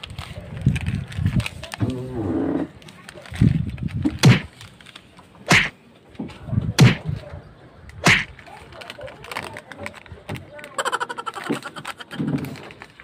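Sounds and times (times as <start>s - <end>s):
sharp whacks: 4.2s - 4.5s, 5.5s - 5.8s, 6.8s - 7.1s, 8.0s - 8.3s.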